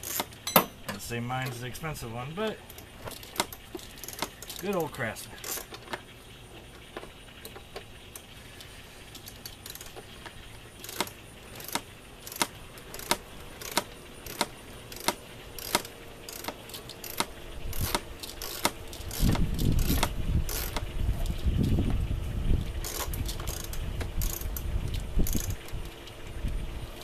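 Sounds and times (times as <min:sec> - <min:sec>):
torque wrench ratchet clicking: 0:02.6 - 0:05.9, 0:09.1 - 0:21.8, 0:22.8 - 0:26.0.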